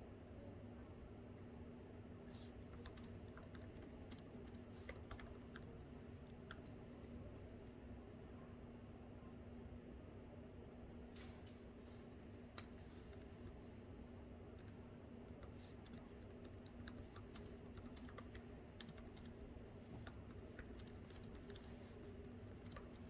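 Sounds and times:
steady low hum: 0.0s - 23.0s
laptop keyboard typing: 2.4s - 7.5s, 14.5s - 14.8s, 15.4s - 23.0s.

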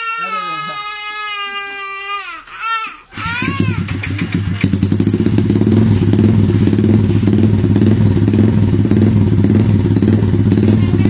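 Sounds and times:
motorcycle engine idling: 3.2s - 11.0s.

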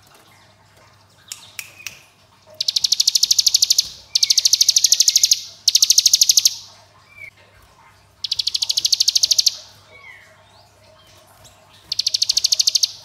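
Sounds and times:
bird chirp: 1.3s - 7.3s, 8.2s - 13.0s
bird rattling trill: 2.6s - 6.7s, 8.2s - 9.7s, 11.8s - 13.0s.

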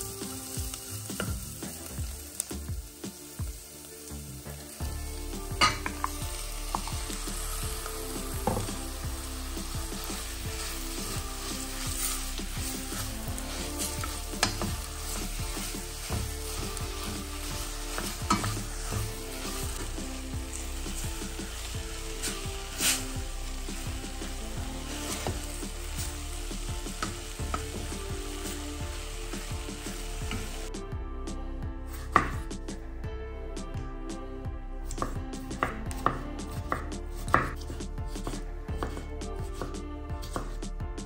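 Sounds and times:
meat sizzling in hot fat: 0.0s - 30.8s
wooden spatula stirring: 5.6s - 30.7s.

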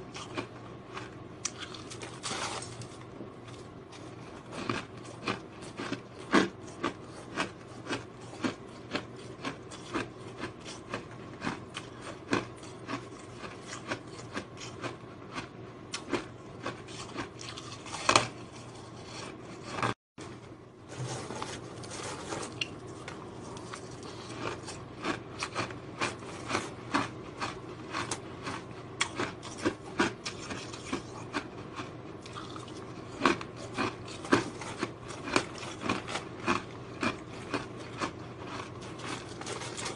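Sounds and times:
ice being chewed: 0.1s - 20.0s, 20.9s - 39.9s.

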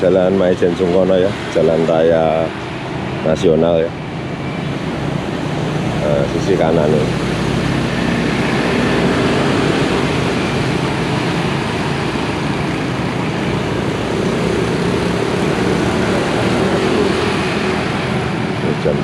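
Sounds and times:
passing cars and motorbikes: 0.0s - 19.0s.

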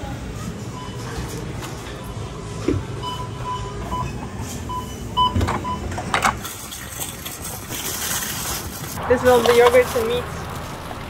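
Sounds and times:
checkout scanner beeps: 0.4s - 6.1s.

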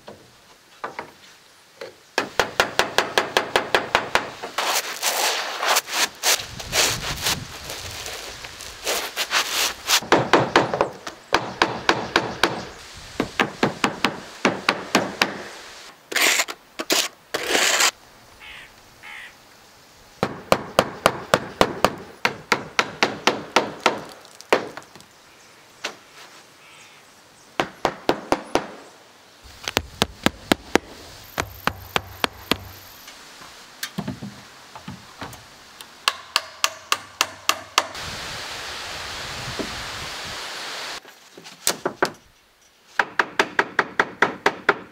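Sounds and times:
short scraping sounds: 4.6s - 10.0s, 16.1s - 18.0s.

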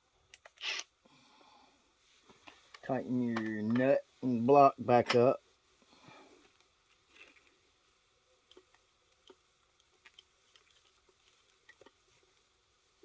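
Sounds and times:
light metallic clicks and clinks: 6.4s - 7.6s, 8.4s - 11.0s.

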